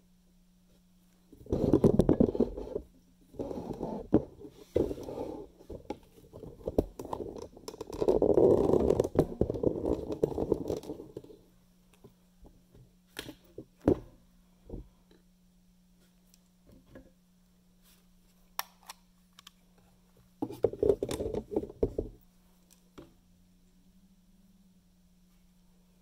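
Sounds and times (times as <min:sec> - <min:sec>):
scraping and rubbing handling noise: 0:00.6 - 0:12.2, 0:17.8 - 0:23.1.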